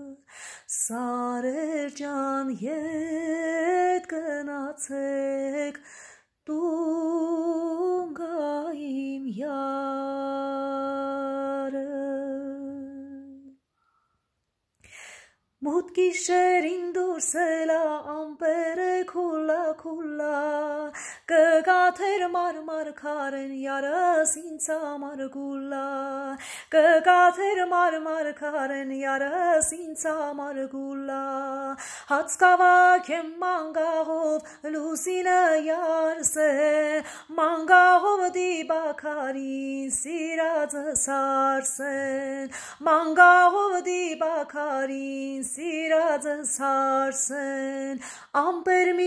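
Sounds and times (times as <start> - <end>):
woman singing unaccompanied: 0.0 - 5.8, 6.4 - 13.6, 15.6 - 49.0
quick breaths: 0.3 - 0.7, 5.8 - 6.4, 13.7 - 15.4, 20.9 - 21.3, 26.4 - 26.7, 31.8 - 32.1, 42.5 - 42.8, 48.0 - 48.3.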